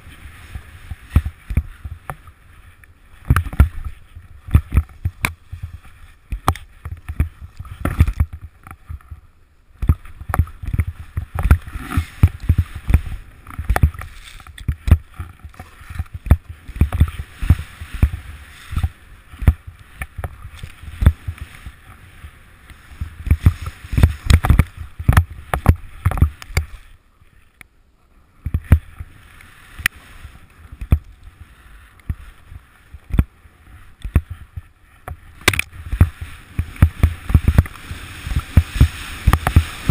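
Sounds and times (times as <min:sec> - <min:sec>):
snowboard hissing through snow: 0:11.5 - 0:13.4, 0:17.1 - 0:19.2, 0:35.8 - 0:39.9.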